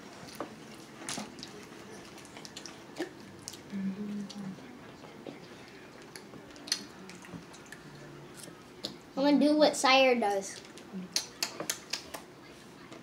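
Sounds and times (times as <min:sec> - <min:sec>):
chewing mouth noises: 0:00.2 - 0:04.5, 0:05.4 - 0:08.6.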